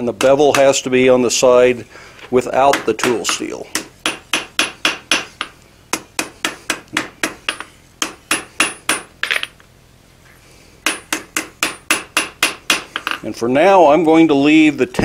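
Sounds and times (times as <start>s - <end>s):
hammer striking steel on anvil: 2.7s - 9.5s, 10.8s - 13.2s.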